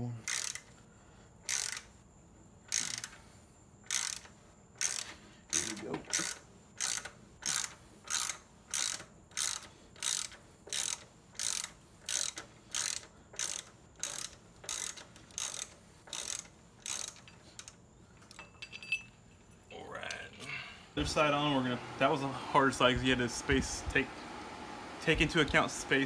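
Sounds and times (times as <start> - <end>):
socket ratchet clicking: 0.2 - 0.8, 1.4 - 1.9, 2.7 - 17.8.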